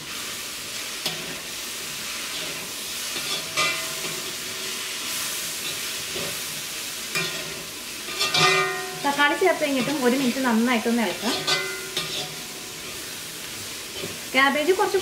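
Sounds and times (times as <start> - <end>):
food sizzling in a wok: 0.0 - 15.0
metal spatula scraping pan: 2.2 - 6.5, 7.1 - 10.4, 11.0 - 14.3.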